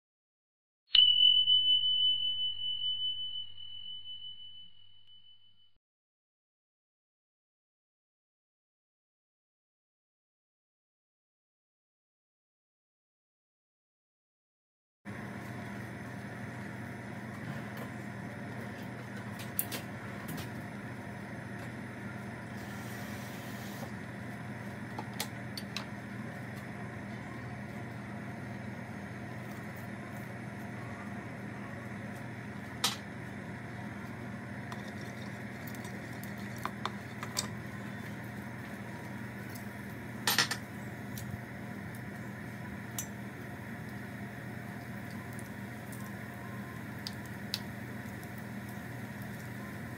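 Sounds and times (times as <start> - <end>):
steady low hum: 15.1 - 49.9.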